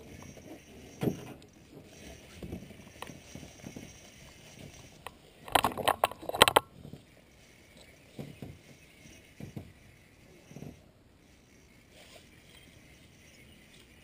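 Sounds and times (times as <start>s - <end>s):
faint handling noise: 0.0s - 8.8s
sharp clicks and knocks: 4.6s - 6.7s.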